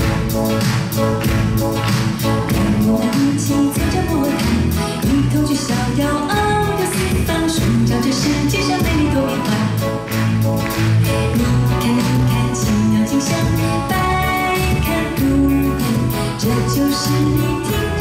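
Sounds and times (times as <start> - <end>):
live band playing: 0.0 - 18.0
woman singing into microphone: 2.5 - 10.1, 11.3 - 18.0.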